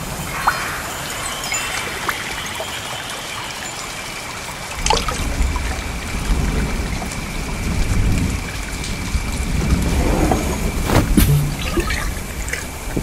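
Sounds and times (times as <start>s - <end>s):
thin steady high tone: 0.0s - 4.8s
water trickling: 0.4s - 13.0s
low rumble: 9.6s - 12.4s.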